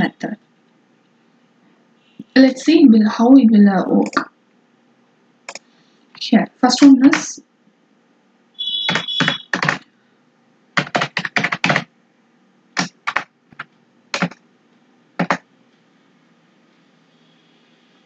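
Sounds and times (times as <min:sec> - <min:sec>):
keyboard keys clicking: 0:08.9 - 0:09.8, 0:12.8 - 0:14.4, 0:15.2 - 0:15.4.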